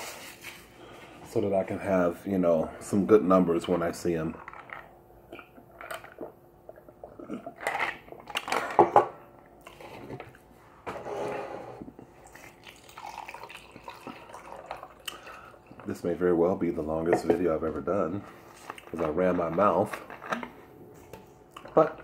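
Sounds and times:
liquid pouring into glass: 0:12.5 - 0:15.9.

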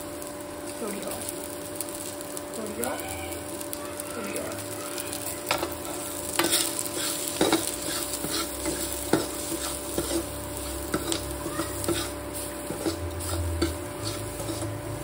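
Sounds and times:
onions sizzling in oil: 0:00.0 - 0:15.0
spoon scraping metal pan: 0:06.4 - 0:14.8.

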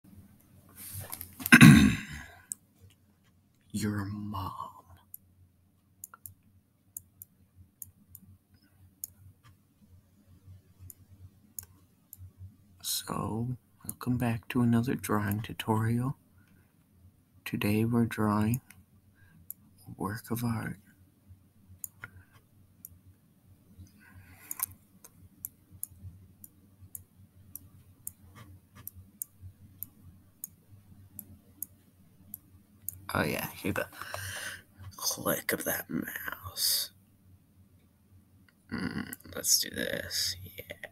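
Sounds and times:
faint low hum: 0:00.1 - 0:40.9
computer mouse clicking: 0:06.0 - 0:09.6, 0:21.8 - 0:23.0, 0:23.8 - 0:33.1.

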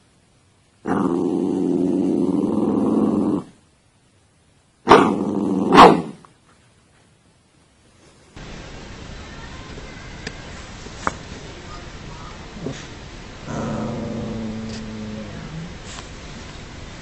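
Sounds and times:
dog growling: 0:00.8 - 0:03.6, 0:04.9 - 0:06.1, 0:12.6 - 0:15.9.

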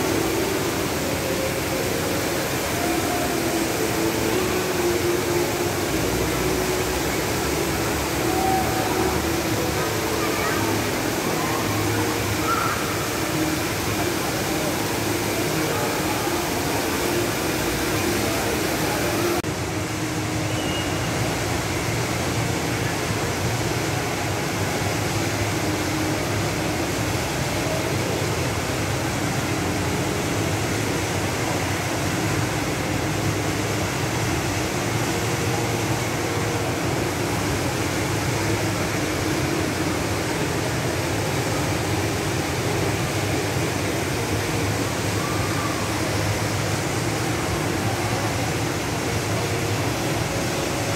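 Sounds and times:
indoor waterfall rushing: 0:00.0 - 0:50.9.

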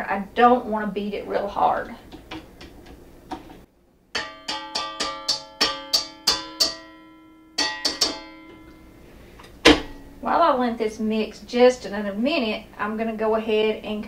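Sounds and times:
plucked string music: 0:04.2 - 0:09.0
sharp knock: 0:09.6 - 0:10.0.

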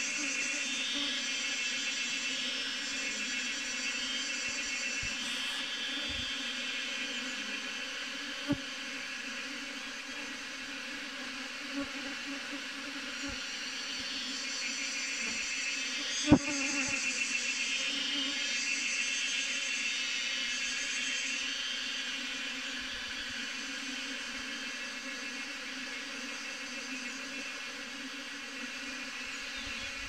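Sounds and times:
bees buzzing: 0:02.4 - 0:10.4.

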